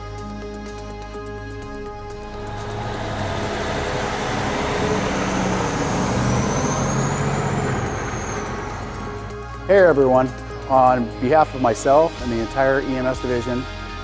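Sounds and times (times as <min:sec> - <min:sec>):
large vehicle driving past: 0:01.6 - 0:10.6.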